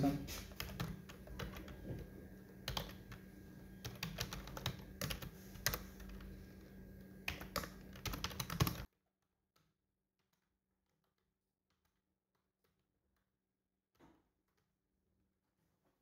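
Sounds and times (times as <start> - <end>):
typing on computer keyboard: 0.5 - 3.2, 3.8 - 6.4, 7.2 - 8.9.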